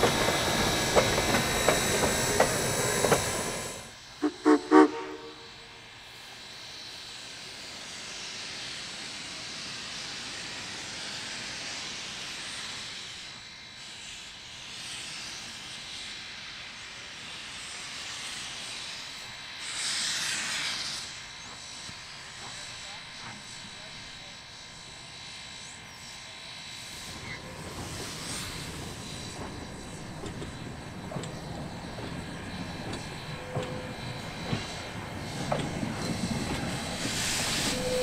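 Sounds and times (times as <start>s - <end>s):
steam locomotive hissing: 0.0s - 38.0s
locomotive whistle toots: 3.0s - 5.8s, 31.0s - 38.0s.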